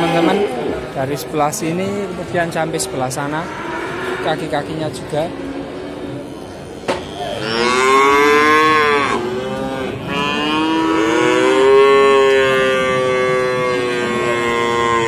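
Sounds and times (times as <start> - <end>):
calves bawling: 5.8 - 15.0.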